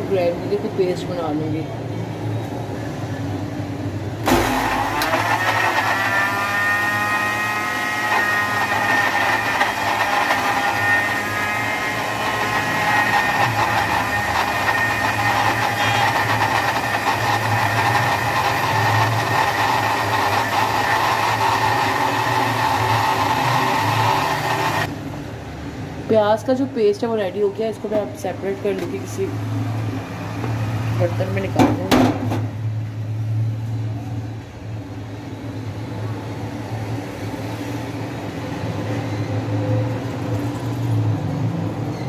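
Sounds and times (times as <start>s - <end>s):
electric blender motor whining: 4.2s - 24.9s.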